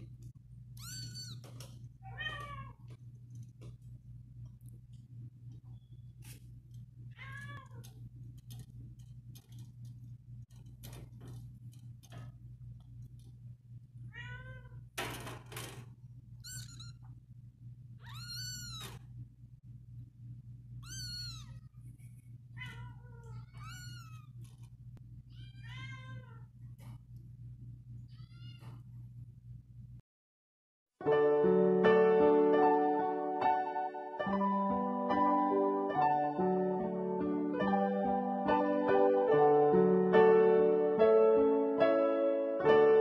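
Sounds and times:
steady low hum: 0.0s - 15.0s, 15.8s - 25.6s, 26.2s - 30.0s
kitten mewing: 20.8s - 21.7s.

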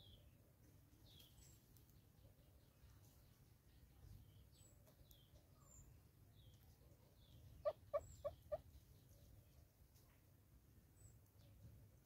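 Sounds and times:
bird clucking: 7.5s - 8.8s.

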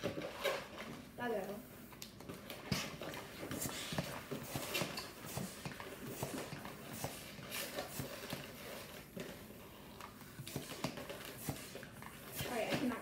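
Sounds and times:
balloons rubbing and squeaking: 0.0s - 1.2s, 2.4s - 13.0s.

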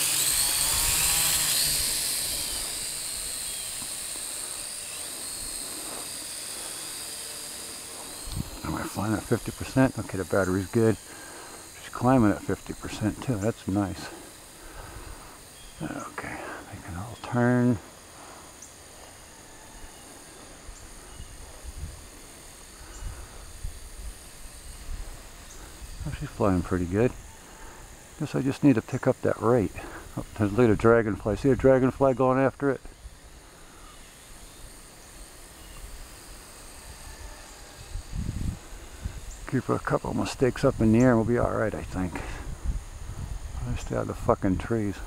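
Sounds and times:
insects trilling: 0.0s - 45.0s
quadcopter propellers whining: 0.0s - 45.0s
wind rumble on microphone: 21.2s - 22.1s, 37.8s - 39.4s, 40.7s - 44.3s.

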